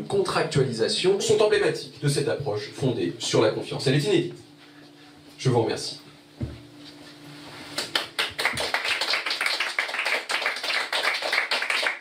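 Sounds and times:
people clapping: 7.7s - 12.0s.

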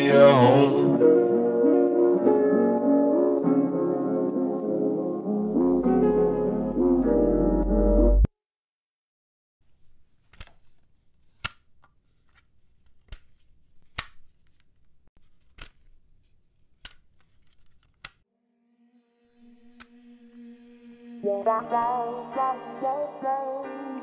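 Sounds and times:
music: 0.0s - 8.3s, 18.3s - 24.0s.

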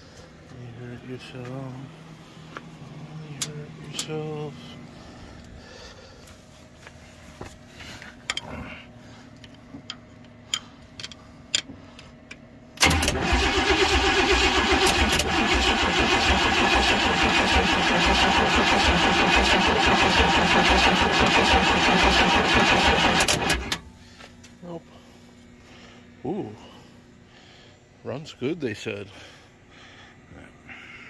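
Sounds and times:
starter cranking truck engine: 12.8s - 23.8s.

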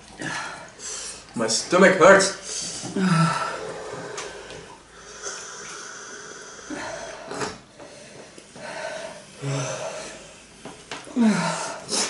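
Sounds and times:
people breathing hard: 2.4s - 12.0s.

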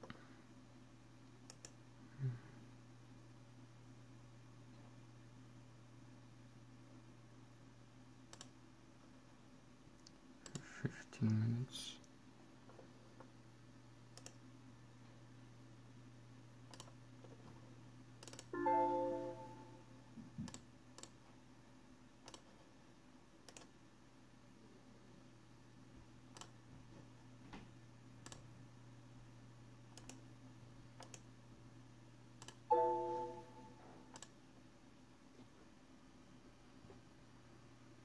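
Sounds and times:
computer mouse clicking: 1.4s - 1.8s, 8.3s - 8.6s, 10.0s - 10.7s, 14.1s - 14.4s, 16.7s - 17.4s, 18.2s - 18.5s, 20.4s - 21.2s, 22.2s - 22.6s, 23.4s - 23.8s, 26.3s - 26.6s, 28.2s - 28.5s, 29.9s - 30.2s, 31.0s - 31.3s, 32.4s - 32.6s, 34.1s - 34.4s
electronic chime: 18.6s - 19.9s, 32.7s - 33.8s.

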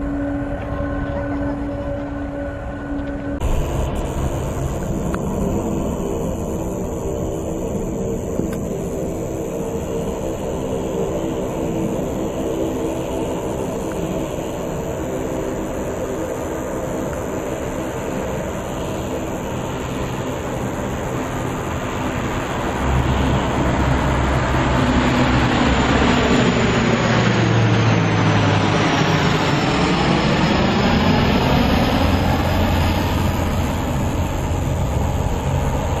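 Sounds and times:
airliner engine hum: 0.0s - 36.0s
high jet whine: 0.0s - 36.0s.

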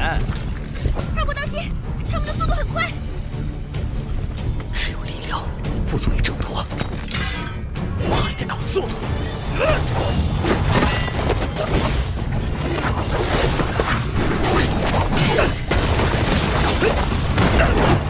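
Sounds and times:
music: 0.0s - 18.0s.

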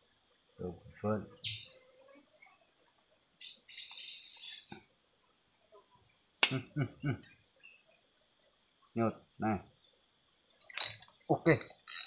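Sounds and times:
insect buzzing trill: 0.0s - 12.0s
insects droning: 0.0s - 12.0s
man murmuring: 6.4s - 7.3s.

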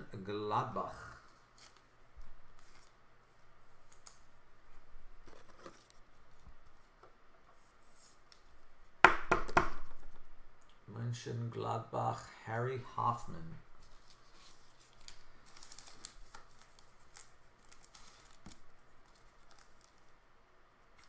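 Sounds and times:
cards rustling: 1.2s - 3.0s, 5.2s - 8.6s, 13.8s - 20.2s.

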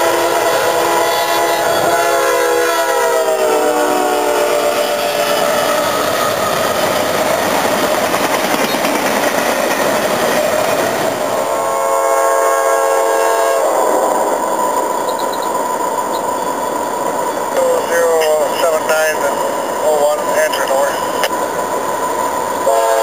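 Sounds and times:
train horn chord: 0.0s - 6.0s, 11.2s - 14.1s, 22.6s - 23.0s
freight train wheel and rail noise: 0.0s - 23.0s.

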